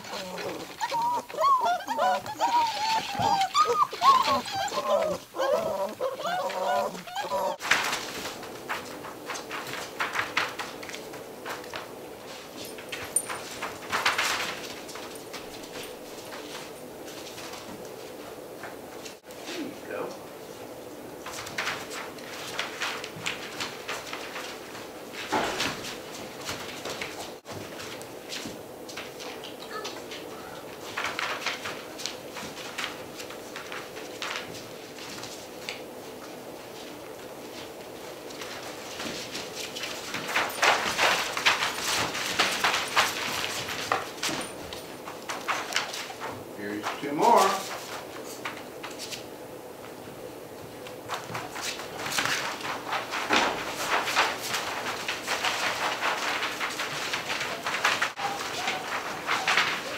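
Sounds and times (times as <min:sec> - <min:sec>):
paper rustling: 0:00.0 - 0:18.4, 0:21.2 - 0:49.3, 0:50.8 - 0:59.9
puppy squeaks: 0:00.1 - 0:07.6.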